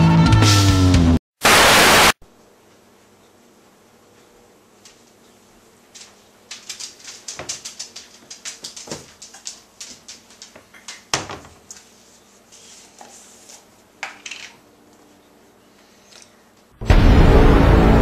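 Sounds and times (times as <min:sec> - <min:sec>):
plastic bag rustling: 0:05.8 - 0:13.6
kitchen items clicking and clattering: 0:06.0 - 0:11.9, 0:14.0 - 0:14.6.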